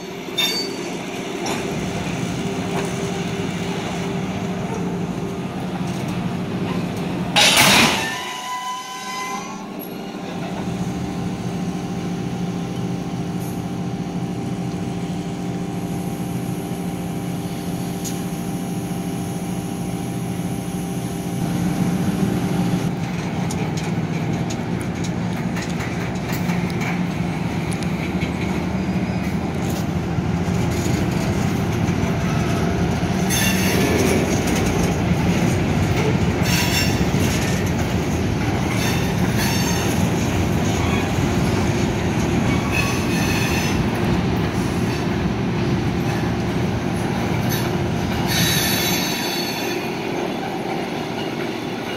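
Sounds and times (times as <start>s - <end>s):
train wheels rumbling and clacking: 0.0s - 51.9s
wheels squealing: 32.2s - 35.0s, 35.9s - 45.0s.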